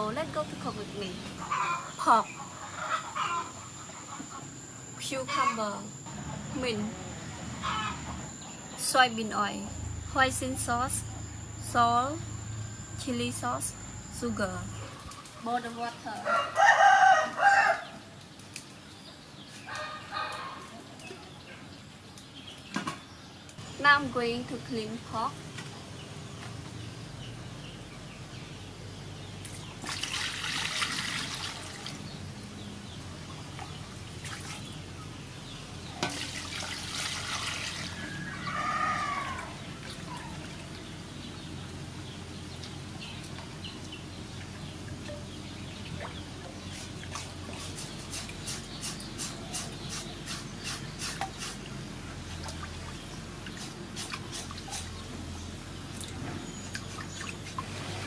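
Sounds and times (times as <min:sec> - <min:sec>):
water splashing in a metal basin: 0:29.5 - 0:32.1, 0:33.5 - 0:34.8, 0:35.9 - 0:38.3.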